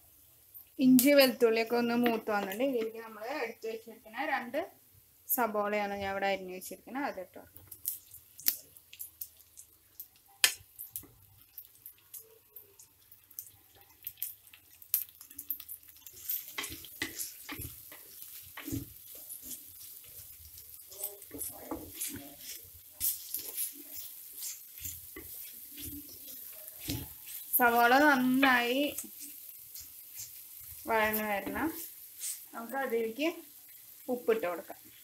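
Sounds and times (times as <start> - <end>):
onions sizzling: 0.0 - 35.0
wooden spatula scraping clay pot: 16.0 - 28.1.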